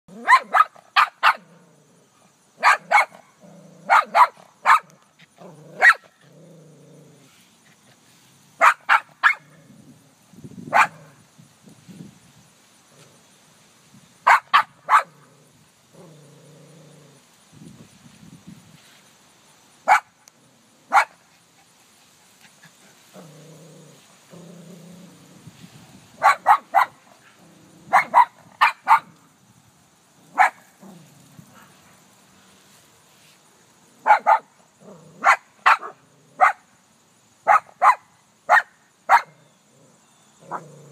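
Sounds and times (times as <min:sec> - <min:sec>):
dog barking: 0:00.1 - 0:01.5, 0:02.6 - 0:03.3, 0:03.9 - 0:04.9, 0:05.8 - 0:06.1, 0:08.6 - 0:09.5, 0:10.7 - 0:11.2, 0:14.3 - 0:15.2, 0:19.9 - 0:20.1, 0:20.9 - 0:21.2, 0:26.2 - 0:27.0, 0:27.9 - 0:29.1, 0:30.4 - 0:30.6, 0:34.0 - 0:34.5, 0:35.2 - 0:36.6, 0:37.4 - 0:39.4
dog growling: 0:01.4 - 0:02.2, 0:03.4 - 0:04.2, 0:05.4 - 0:07.4, 0:15.1 - 0:17.2, 0:23.1 - 0:25.5, 0:27.3 - 0:28.2, 0:34.8 - 0:36.4, 0:39.7 - 0:40.9.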